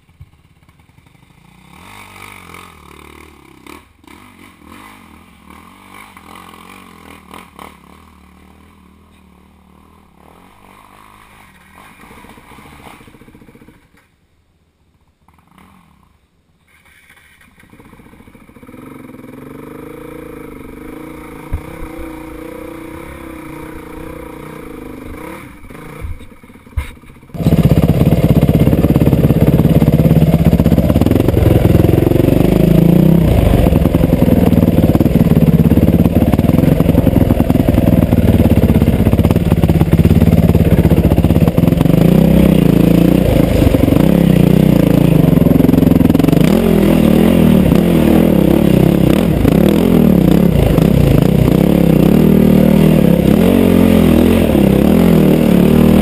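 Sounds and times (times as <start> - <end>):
dirt bike engine running: 17.7 - 56.0.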